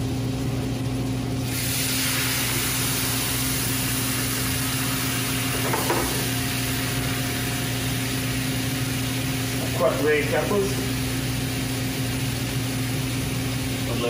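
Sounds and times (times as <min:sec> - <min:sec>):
steady hum: 0:00.0 - 0:14.0
sauce sizzling in a pan: 0:01.4 - 0:09.6.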